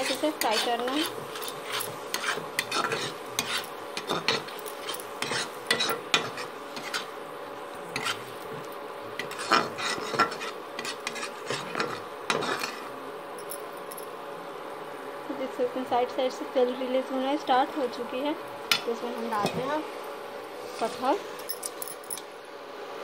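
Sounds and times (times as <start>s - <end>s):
metal spoon scraping a pan: 0.0s - 7.2s, 7.9s - 12.9s.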